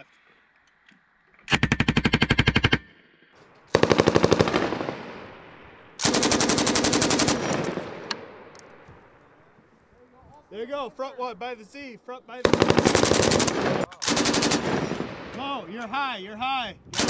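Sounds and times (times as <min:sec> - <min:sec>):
machine gun firing bursts: 0:01.5 - 0:02.8, 0:03.7 - 0:05.3, 0:06.0 - 0:08.0, 0:12.4 - 0:15.4.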